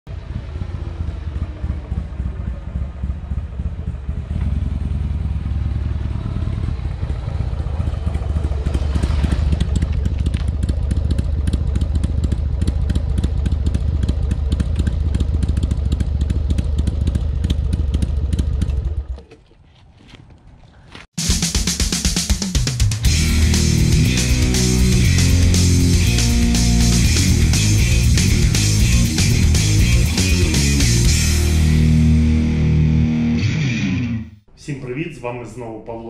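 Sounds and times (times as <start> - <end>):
motorcycle engine idling: 0.1 - 19.2, 23.0 - 32.6.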